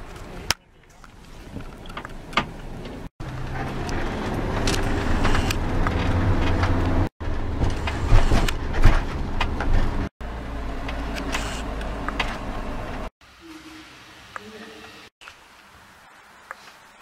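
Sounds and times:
car engine and road noise: 0:00.0 - 0:13.1.

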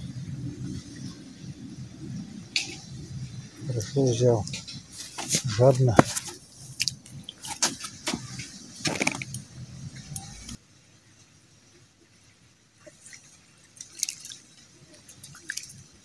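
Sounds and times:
faint drips and clicks: 0:12.8 - 0:15.8
fish splashing in water: 0:12.8 - 0:16.0.

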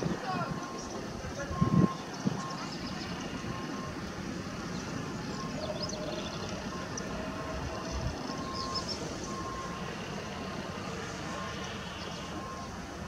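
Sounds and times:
train rolling low rumble: 0:00.0 - 0:13.0
beeping tone: 0:00.3 - 0:02.8.

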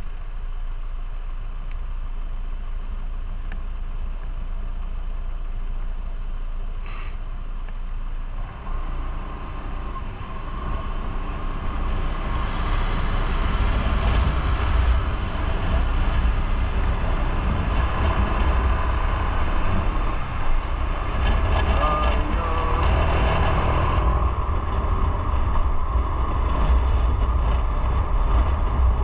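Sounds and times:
road and wind noise: 0:00.0 - 0:29.0
motorcycle engine: 0:08.2 - 0:29.0.

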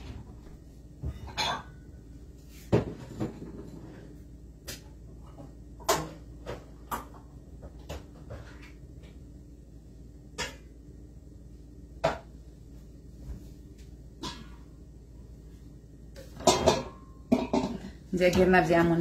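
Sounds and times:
low steady hum: 0:00.0 - 0:19.0
kitchen items knocking: 0:16.4 - 0:19.0.

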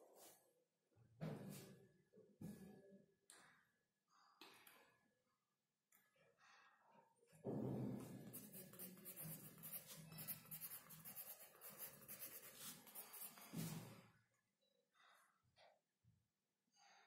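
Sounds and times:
pencil scratching on paper: 0:08.0 - 0:13.9
hand brushing across paper: 0:08.2 - 0:14.0.

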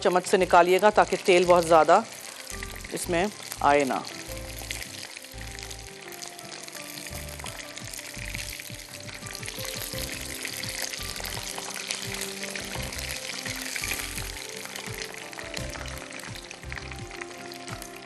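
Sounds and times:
chicken deep-frying in oil: 0:00.0 - 0:18.0
soft background music: 0:00.0 - 0:18.0.

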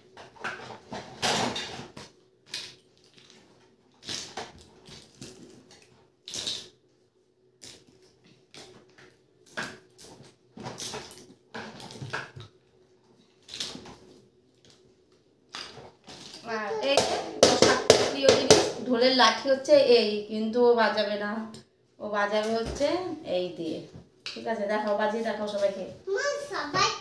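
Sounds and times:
plastic toys clattering: 0:00.2 - 0:06.7.

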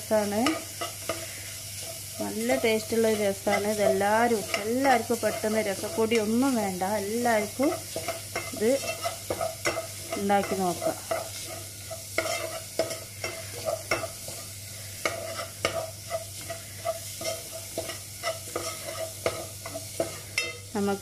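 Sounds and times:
spices sizzling in oil: 0:00.0 - 0:21.0
spoon scraping a pot: 0:00.4 - 0:06.5, 0:07.1 - 0:20.7
spoon clinking against a pot: 0:07.6 - 0:14.4, 0:15.0 - 0:20.7.

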